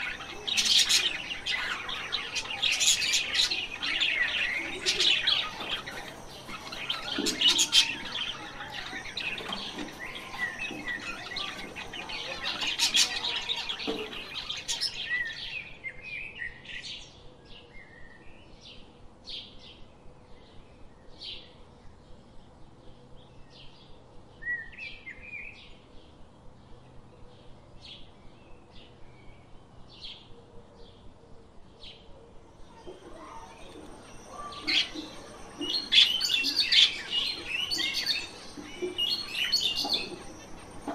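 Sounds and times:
finches chirping: 0.0s - 15.4s, 32.6s - 40.9s.

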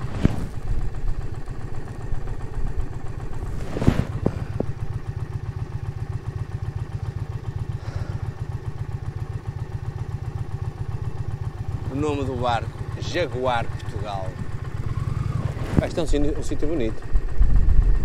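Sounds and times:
clatter and scrape: 0.0s - 0.9s, 3.3s - 4.7s
motorcycle engine idling: 0.0s - 18.0s.

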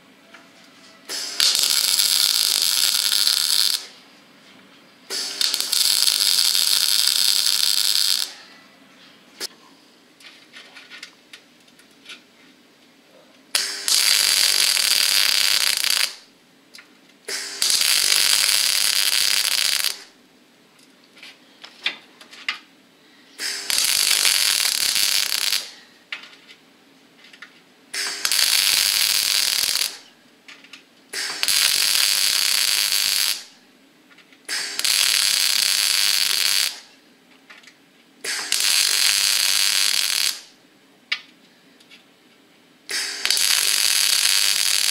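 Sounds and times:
welder arc crackling on steel: 1.1s - 4.0s, 5.1s - 8.5s, 13.5s - 20.2s, 23.4s - 26.5s, 27.4s - 33.6s, 34.4s - 37.0s, 37.6s - 41.2s, 42.9s - 44.9s.

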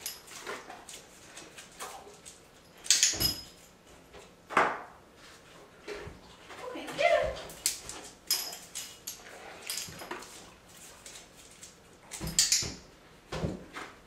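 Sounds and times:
dog claws scrabbling on tub and tile: 0.0s - 14.0s.

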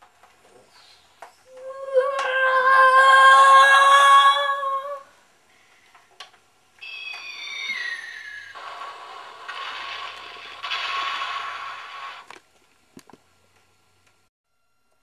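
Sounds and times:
long vocal cry: 1.5s - 5.1s
falling whistle-like glide: 6.8s - 8.6s.

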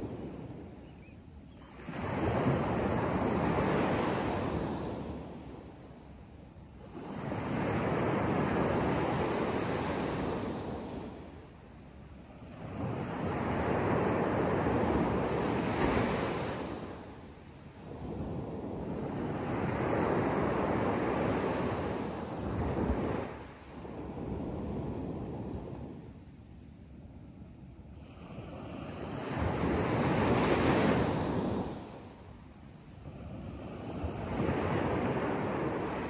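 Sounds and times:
small waves breaking on sand: 12.3s - 26.0s, 27.9s - 32.3s, 33.0s - 36.0s.

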